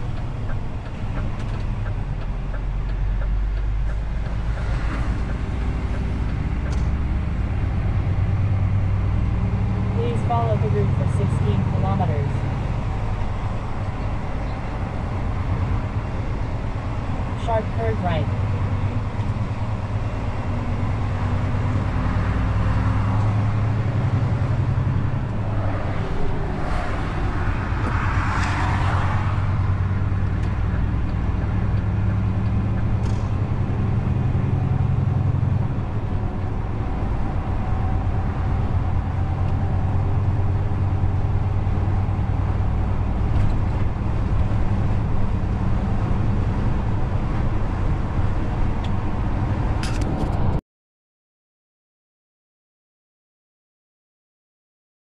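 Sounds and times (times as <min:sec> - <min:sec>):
truck diesel engine droning: 0:00.0 - 0:50.0
rushing noise: 0:21.9 - 0:31.4.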